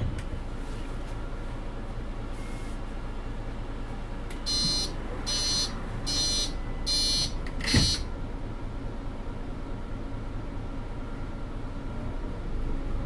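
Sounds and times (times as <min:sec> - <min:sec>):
bus door warning beeps: 0:02.3 - 0:02.8, 0:04.3 - 0:08.1
thump: 0:07.7 - 0:08.0.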